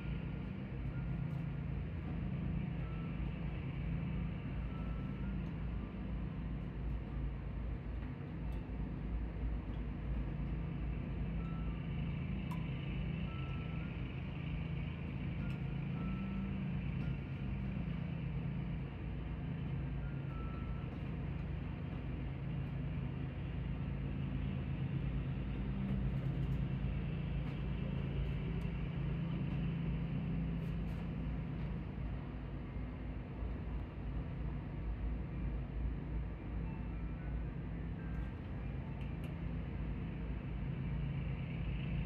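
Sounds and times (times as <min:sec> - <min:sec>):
ice cream truck music chime: 0:00.0 - 0:06.7, 0:10.6 - 0:23.0, 0:36.6 - 0:38.9
muffled engine drone: 0:00.0 - 0:42.0.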